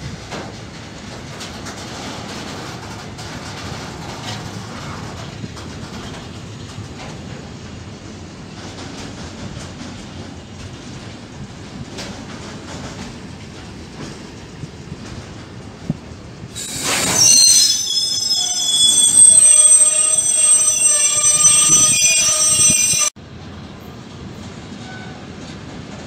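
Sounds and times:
train wagons rumbling on rails: 0.0 - 19.1, 23.5 - 26.0
high-pitched metallic wheel squeal: 16.6 - 23.1.

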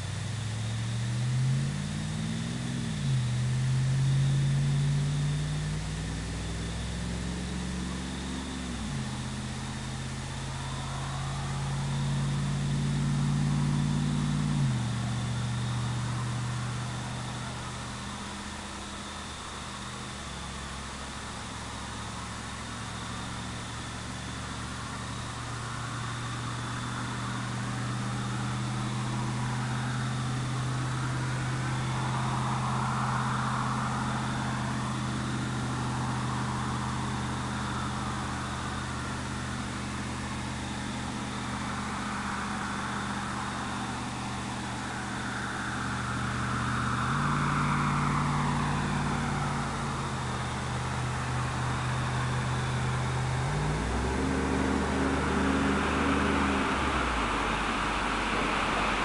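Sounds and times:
truck engine idling: 0.0 - 59.0
higher rushing sound: 45.7 - 59.0.

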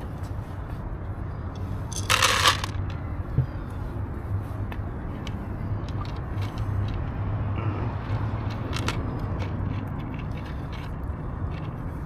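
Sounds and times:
low engine-like rumble: 0.0 - 12.0
cat crunching dry food: 8.4 - 11.8.

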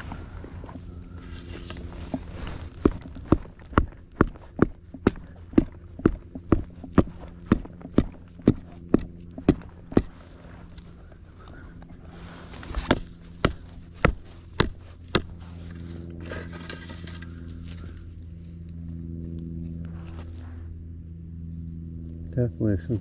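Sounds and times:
footsteps on gravel: 0.0 - 17.8
steady low drone: 0.0 - 23.0.

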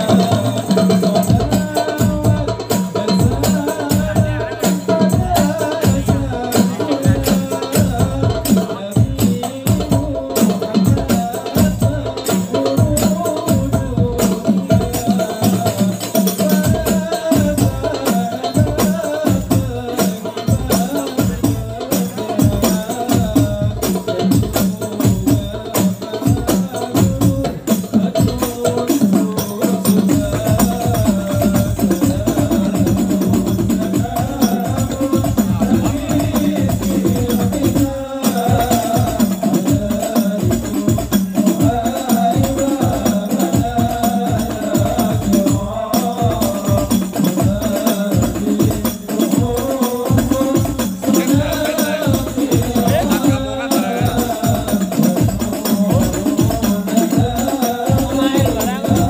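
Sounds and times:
frame drums beating: 0.0 - 59.0.

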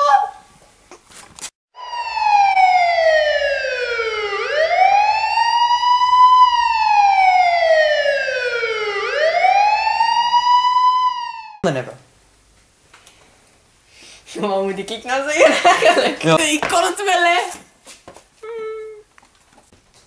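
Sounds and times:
wailing siren: 1.8 - 11.6.

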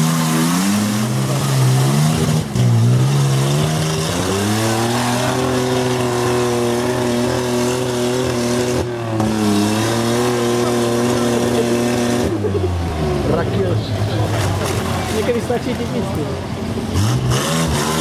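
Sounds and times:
off-road engine under load: 0.0 - 18.0.

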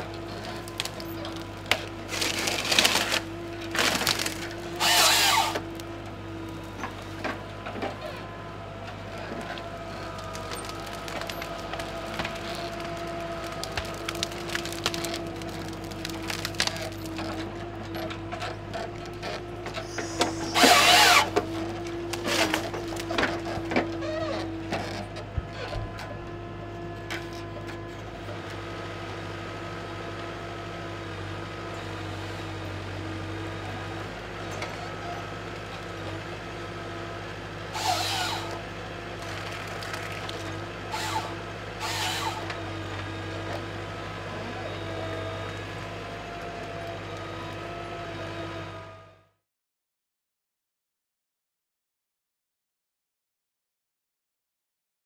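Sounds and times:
forest harvester running: 0.0 - 49.4
wood snapping and cracking: 0.4 - 5.9, 9.4 - 17.4, 20.2 - 23.9, 39.2 - 41.3
loud bursts from harvester head: 19.8 - 21.4.

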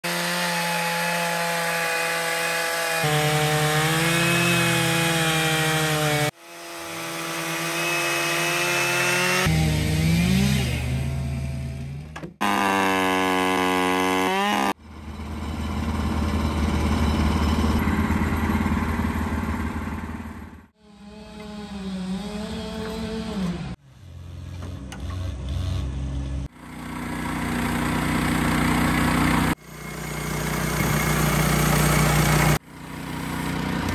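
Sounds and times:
chainsaw ripping wood: 0.0 - 14.8
bandsaw mill engine running: 0.0 - 23.7, 26.5 - 33.9.

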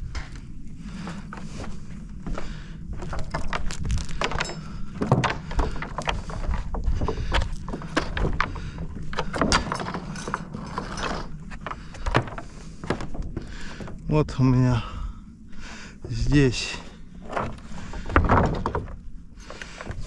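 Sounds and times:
footsteps on wooden boards: 0.0 - 14.1, 15.6 - 20.0
low steady rumble: 0.0 - 20.0.

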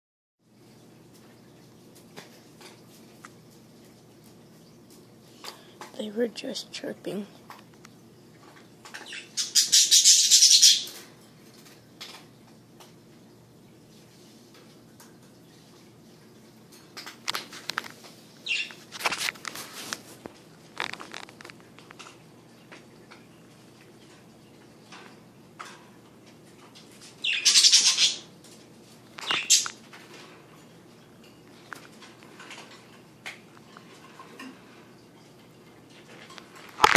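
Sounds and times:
parakeets chirping: 9.0 - 11.0, 18.4 - 18.8, 27.2 - 28.3, 29.2 - 29.7.

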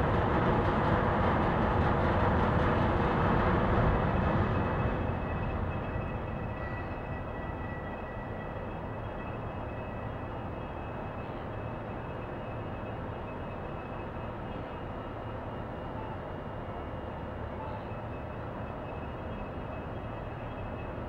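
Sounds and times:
faint high whine: 4.6 - 21.0.

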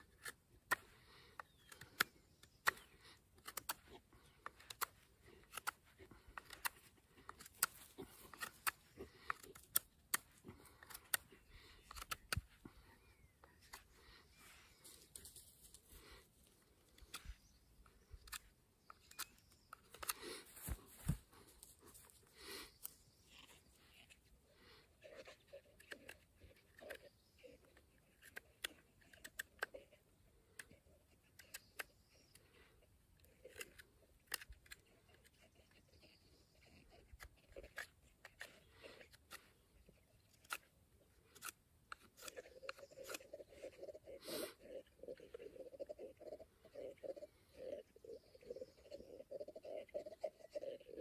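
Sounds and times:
knife scraping wood: 0.0 - 12.8, 33.2 - 51.0.

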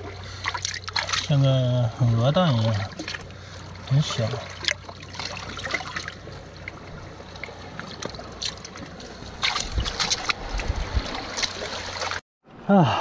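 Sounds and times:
small splashes and clicks: 0.0 - 1.3, 2.6 - 3.4, 4.0 - 12.2
seawater sloshing over rocks: 0.0 - 12.2
wind buffeting microphone: 9.3 - 11.5.

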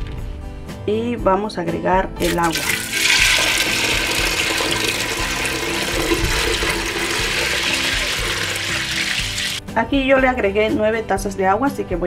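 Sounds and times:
water pouring into a pot: 2.2 - 9.6.

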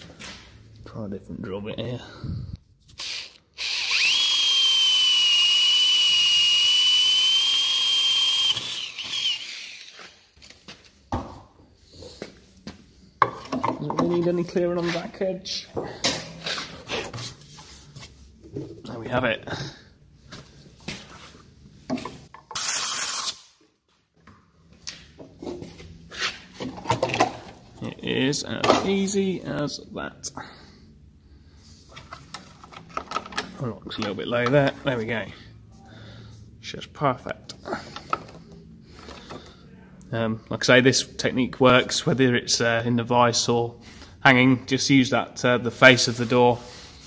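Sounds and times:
cordless drill whining: 3.0 - 10.2.

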